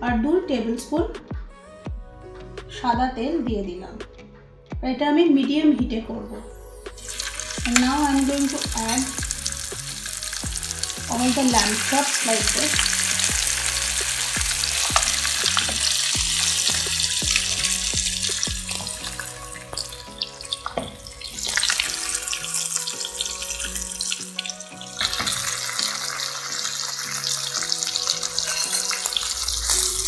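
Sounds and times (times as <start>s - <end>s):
soft background music: 0.0s - 30.0s
meat sizzling in oil: 7.0s - 30.0s.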